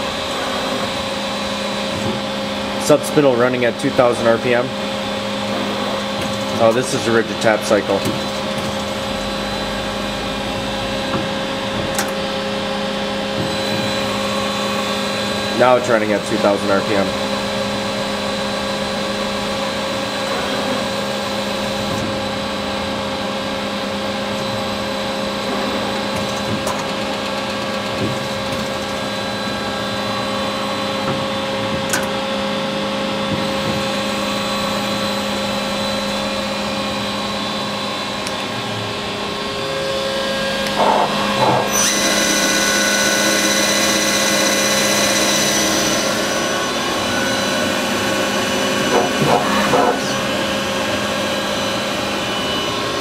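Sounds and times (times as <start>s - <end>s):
lathe humming and whining: 0.0s - 53.0s
higher whine: 28.8s - 53.0s.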